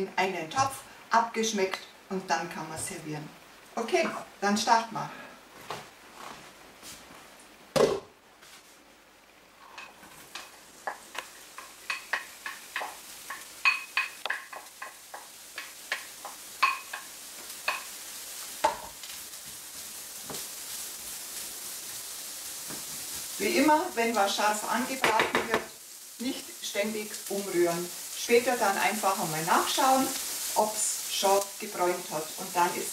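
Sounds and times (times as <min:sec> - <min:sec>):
onions sizzling in frying pan: 0:09.4 - 0:32.9
clinks of glass bowl on pan: 0:13.6 - 0:14.6.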